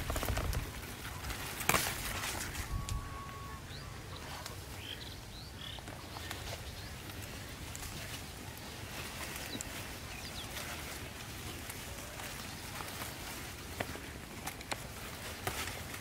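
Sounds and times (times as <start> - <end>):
rustling leaves and stems: 0.0 - 16.0
stem snapping: 1.6 - 3.0
bird chirps: 2.6 - 7.0.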